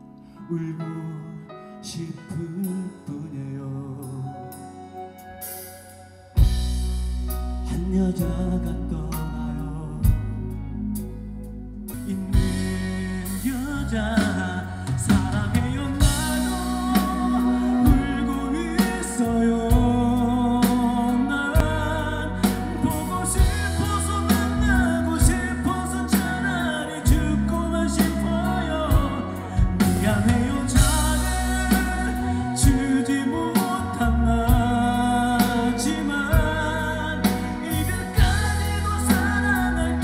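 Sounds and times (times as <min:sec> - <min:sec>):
person singing: 0:00.0 - 0:06.6, 0:07.6 - 0:11.1, 0:11.9 - 0:40.0
live band playing pop ballad: 0:00.0 - 0:40.0
sustained bass notes: 0:06.3 - 0:40.0
steady drum beat: 0:14.2 - 0:21.8, 0:22.4 - 0:40.0.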